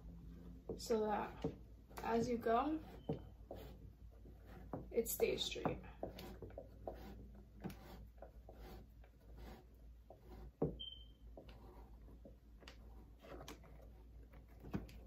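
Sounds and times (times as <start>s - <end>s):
brief high squeak: 10.8s - 11.2s.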